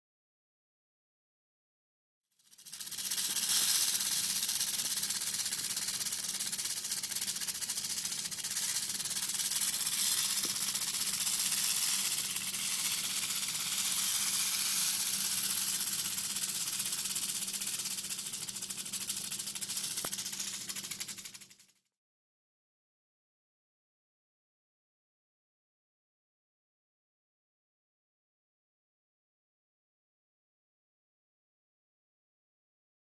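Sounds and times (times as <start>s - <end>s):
rattlesnake rattling: 2.4s - 21.8s.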